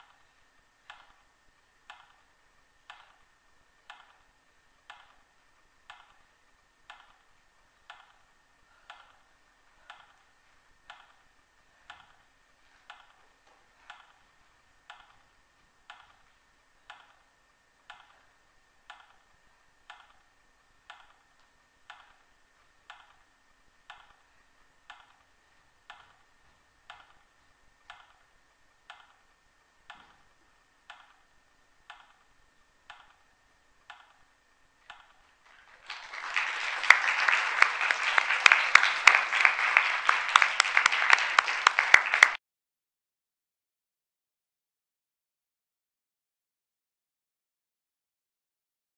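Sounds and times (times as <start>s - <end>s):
faint steady ticking: 0.0s - 35.4s
low steady hum: 0.0s - 42.4s.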